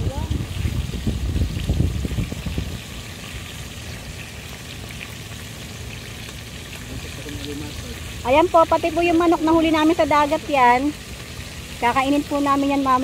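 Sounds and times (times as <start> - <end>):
food deep-frying in oil: 0.0 - 13.0
low rumbling: 0.0 - 13.0.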